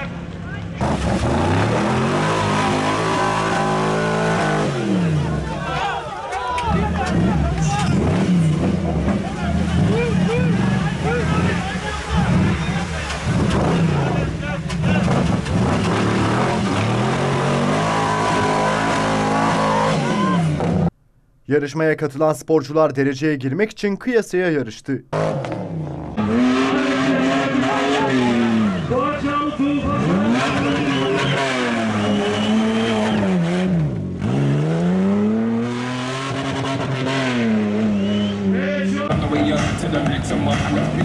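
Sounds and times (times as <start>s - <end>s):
engine revving hard: 0.8s - 5.4s, 7.0s - 20.9s, 25.1s - 29.0s, 29.8s - 38.6s.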